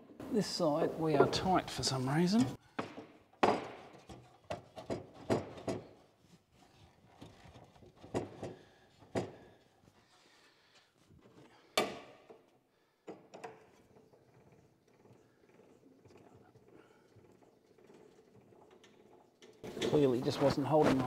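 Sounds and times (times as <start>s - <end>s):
knocks and clunks of tools and steel: 2.4s - 6.1s, 7.1s - 9.7s, 11.2s - 21.0s.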